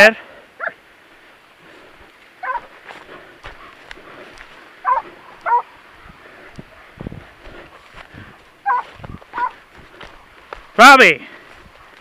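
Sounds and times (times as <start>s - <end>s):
dog yelping: 2.4s - 2.7s, 4.8s - 5.8s, 8.6s - 9.6s.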